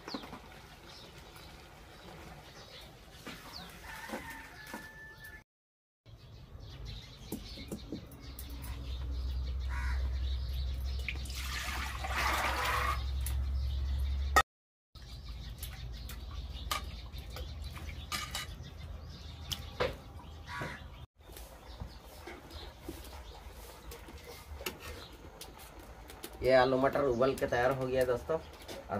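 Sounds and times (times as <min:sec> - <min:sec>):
birds chirping: 0:06.1 - 0:14.4, 0:15.0 - 0:28.9
water sloshing and splashing: 0:11.0 - 0:13.4
steel pots clinking: 0:17.9 - 0:18.7.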